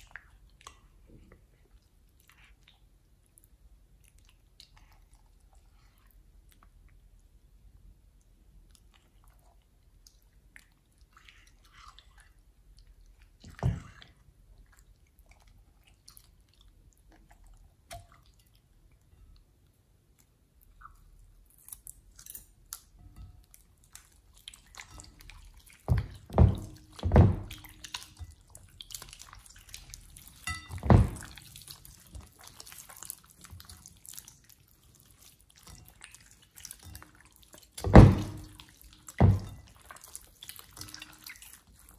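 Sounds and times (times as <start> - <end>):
slime squelching: 19.7 - 41.9.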